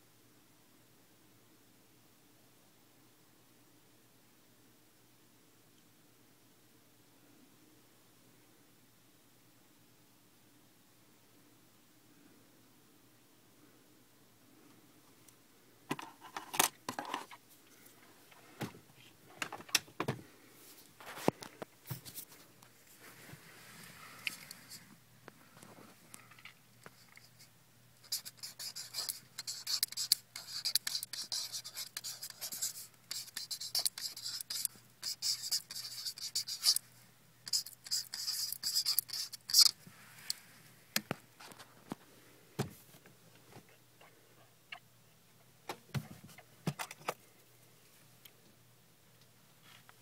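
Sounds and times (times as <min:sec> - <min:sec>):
marker pen scratching on cardboard: 0:28.0 - 0:36.8, 0:37.4 - 0:39.8.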